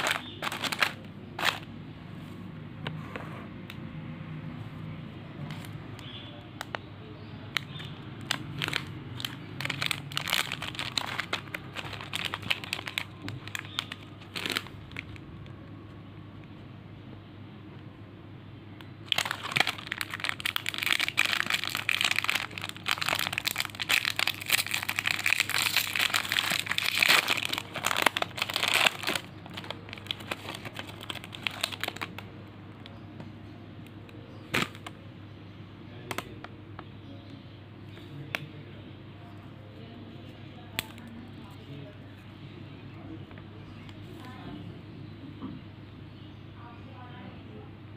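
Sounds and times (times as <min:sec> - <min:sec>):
plastic wrapper crinkling: 0:00.0 - 0:01.7, 0:07.5 - 0:15.3, 0:19.0 - 0:32.3, 0:34.5 - 0:35.0.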